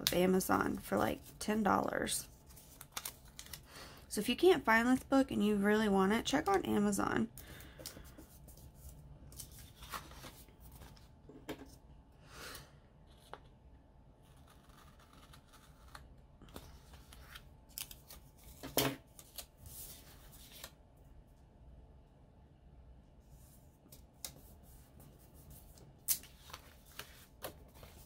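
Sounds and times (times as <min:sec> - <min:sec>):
paper rustling: 0:02.4 - 0:03.6, 0:07.8 - 0:11.1, 0:16.5 - 0:20.7, 0:25.5 - 0:28.0.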